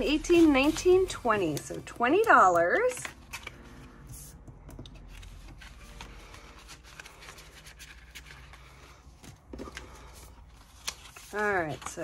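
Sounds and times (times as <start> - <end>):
paper rustling and tapping: 10.7 - 12.0.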